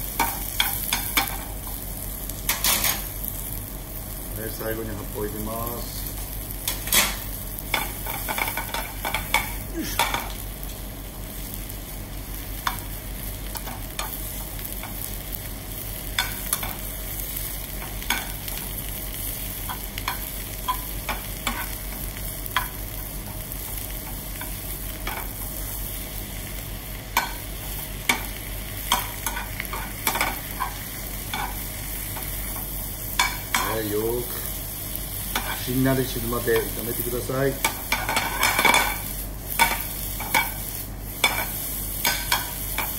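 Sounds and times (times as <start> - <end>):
food sizzling in a frying pan: 0.0 - 42.9.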